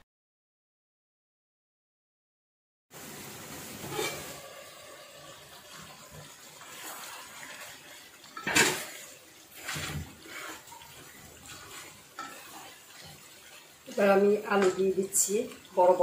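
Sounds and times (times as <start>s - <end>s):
wooden spatula scraping pot: 3.8s - 4.5s, 5.7s - 16.0s.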